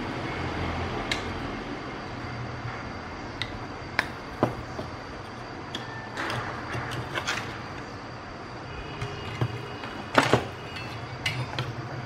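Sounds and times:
steady low hum: 0.0s - 12.0s
small tools clicking and tapping: 1.0s - 1.4s, 3.4s - 7.9s.

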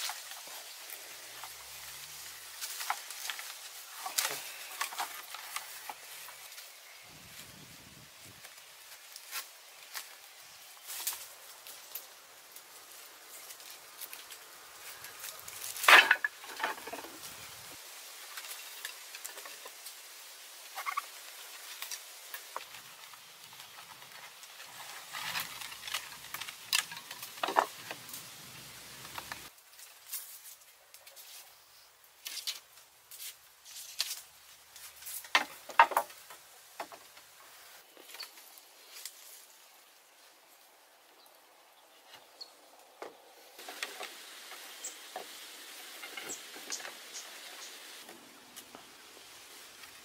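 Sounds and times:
rustling: 0.0s - 31.6s, 32.2s - 40.5s
wooden poles knocking and clattering: 15.6s - 17.3s, 22.5s - 28.1s, 35.0s - 37.2s.

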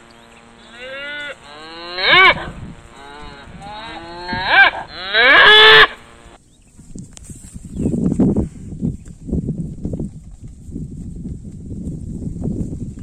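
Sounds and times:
cattle mooing: 0.0s - 6.3s.

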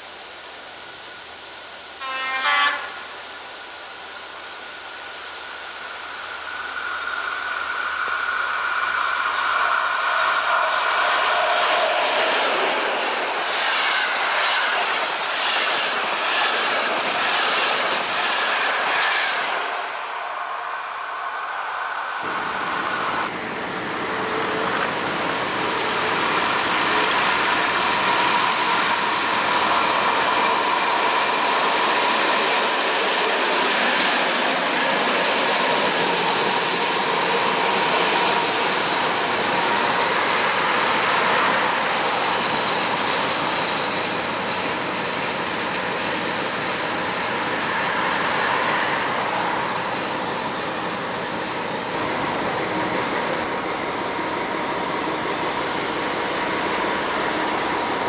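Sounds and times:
diesel locomotive engine running: 0.1s - 58.0s
locomotive horn blast: 2.0s - 3.1s.

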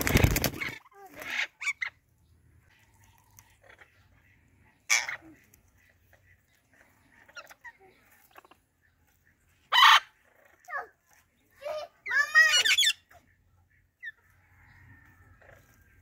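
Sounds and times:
parrots screeching and squawking: 0.0s - 2.0s, 3.3s - 4.2s, 4.8s - 8.6s, 9.5s - 13.3s.

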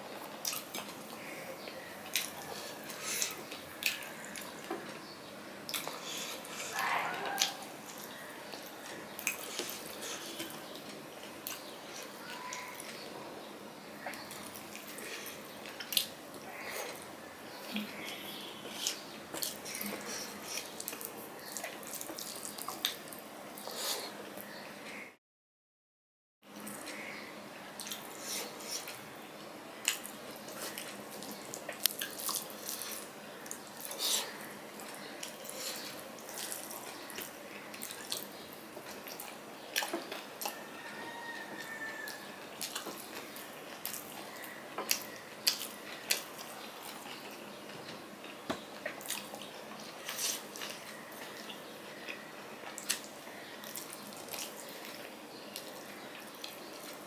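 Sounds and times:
wet chewing and lip smacking: 48.2s - 57.0s.

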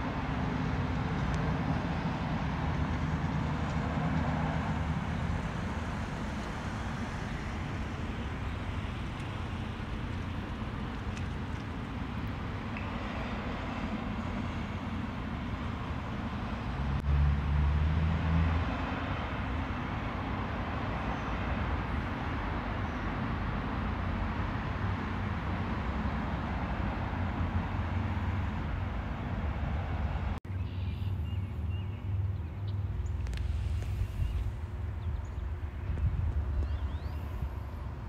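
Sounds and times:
road traffic rumble and hiss: 0.0s - 38.0s.

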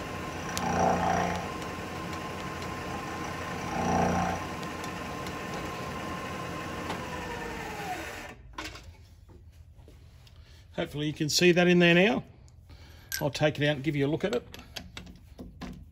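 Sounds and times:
milling machine spindle whine: 0.0s - 8.3s
end mill cutting roughly: 0.0s - 8.4s.

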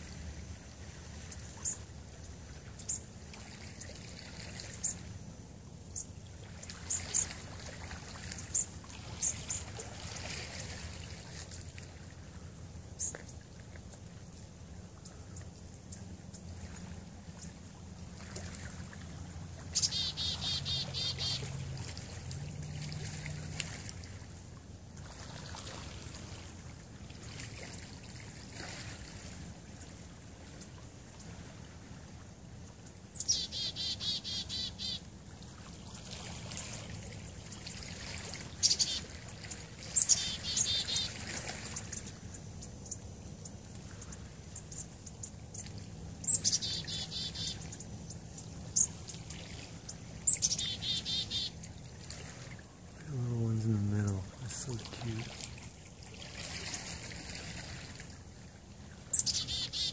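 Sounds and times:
songbird trilling: 0.0s - 3.1s, 4.6s - 5.2s, 6.8s - 7.4s, 8.3s - 9.7s, 13.0s - 13.2s, 19.7s - 21.6s, 33.1s - 35.0s, 38.5s - 52.0s, 59.1s - 59.9s
faint steady hiss: 0.0s - 33.6s, 34.2s - 59.5s.

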